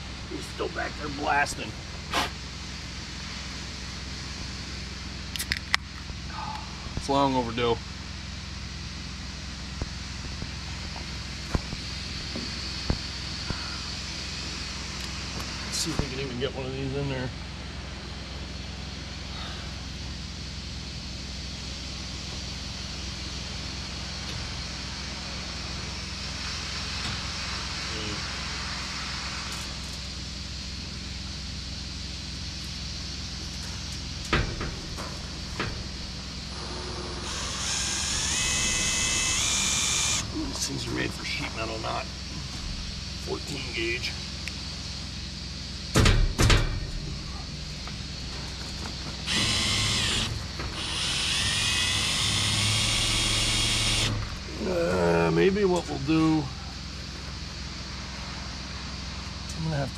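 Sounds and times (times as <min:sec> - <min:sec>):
low machine drone: 0:00.0 - 0:59.9
abrasive blasting hiss: 0:22.1 - 0:46.5, 0:48.9 - 0:59.0
power drill running: 0:36.5 - 0:40.4, 0:49.2 - 0:54.4.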